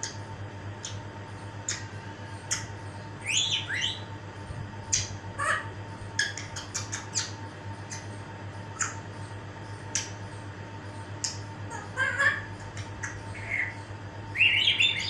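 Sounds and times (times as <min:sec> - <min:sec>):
parrot sharp clicks: 0:01.7 - 0:01.9, 0:06.2 - 0:07.3, 0:09.9 - 0:10.2, 0:11.2 - 0:11.4
parrot squawk: 0:05.4 - 0:05.8, 0:11.7 - 0:12.6, 0:13.3 - 0:13.8.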